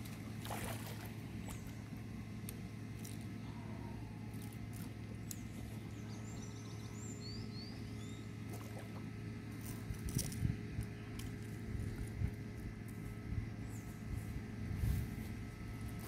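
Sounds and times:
fish splashing at water surface: 0:00.3 - 0:01.6
faint bird chirps: 0:05.3 - 0:08.4.

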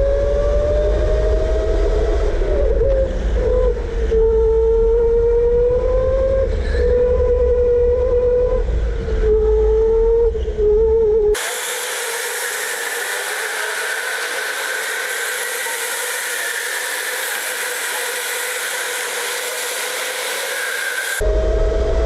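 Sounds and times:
low wind rumble: 0:00.0 - 0:11.4, 0:21.2 - 0:22.0
steady hiss of karts on track: 0:11.4 - 0:21.2
electric go-kart motor whining: 0:11.4 - 0:22.0.

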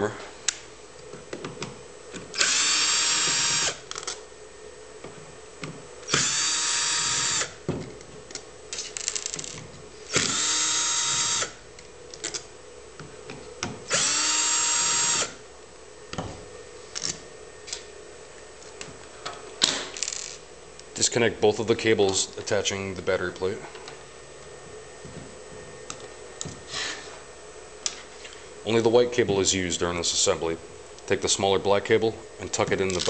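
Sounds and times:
cordless drill motor whine: 0:02.3 - 0:04.1, 0:06.0 - 0:07.6, 0:09.4 - 0:11.6, 0:13.9 - 0:15.4.

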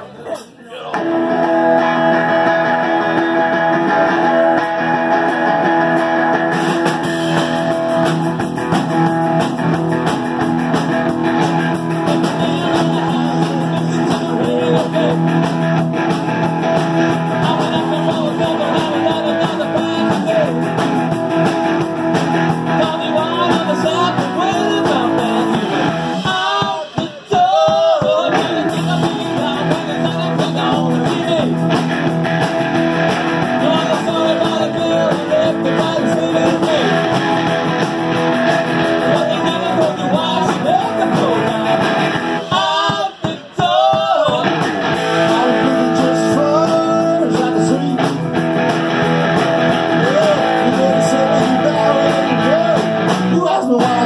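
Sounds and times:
rockabilly band playing: 0:00.2 - 0:54.0
man singing lead vocal: 0:11.8 - 0:16.4, 0:17.0 - 0:21.2, 0:22.4 - 0:31.9, 0:33.3 - 0:37.2, 0:38.7 - 0:48.4, 0:49.6 - 0:54.0.

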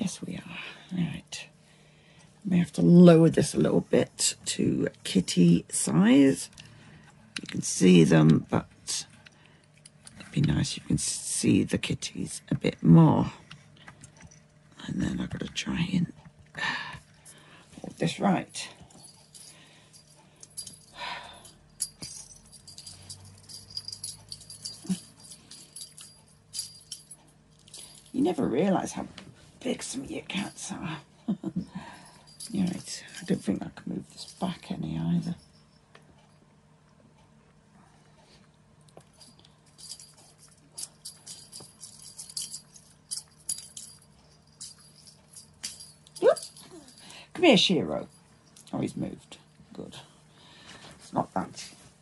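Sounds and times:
small bells jingling: 0:17.8 - 0:28.9, 0:29.9 - 0:35.9, 0:39.1 - 0:49.4.

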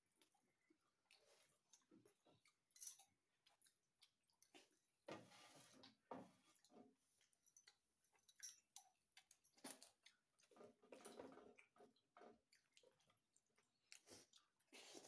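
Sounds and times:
person chewing food: 0:00.0 - 0:05.0, 0:05.8 - 0:15.0.

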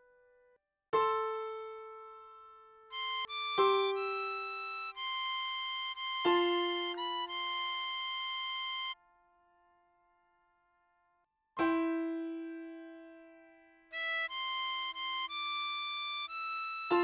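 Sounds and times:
piano chords: 0:01.0 - 0:09.0
harmonica melody: 0:02.9 - 0:09.0, 0:13.9 - 0:17.0.

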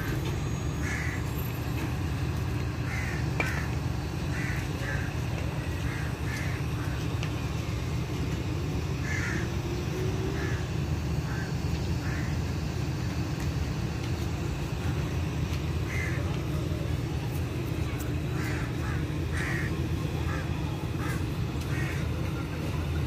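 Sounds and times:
steady low rumble: 0:00.0 - 0:23.0
crows cawing: 0:00.8 - 0:01.3, 0:02.8 - 0:08.0, 0:08.8 - 0:12.7, 0:15.2 - 0:16.8, 0:17.8 - 0:22.4.

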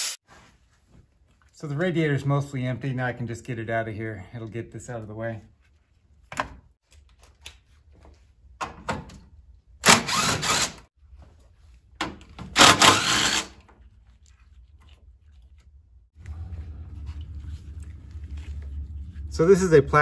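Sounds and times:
power tool rattling: 0:09.8 - 0:10.8, 0:12.5 - 0:13.6.

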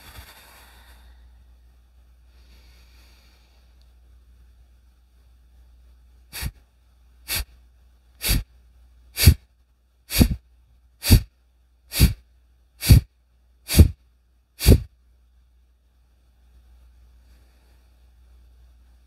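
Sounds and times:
forceful nasal exhalations: 0:00.0 - 0:01.2, 0:06.4 - 0:06.6, 0:07.3 - 0:07.5, 0:08.2 - 0:08.5, 0:09.2 - 0:09.4, 0:10.1 - 0:10.4, 0:11.0 - 0:11.3, 0:11.9 - 0:12.2, 0:12.8 - 0:13.1, 0:13.7 - 0:14.0, 0:14.6 - 0:14.9.

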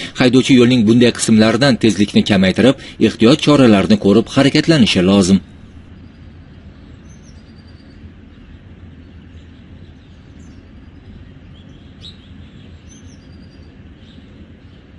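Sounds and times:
steady low rumble: 0:00.0 - 0:14.9
bird chirps: 0:05.8 - 0:14.9.

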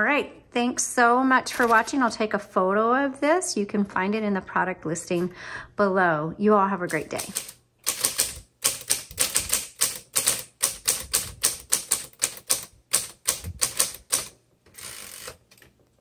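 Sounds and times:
typewriter key strikes: 0:06.9 - 0:15.4.

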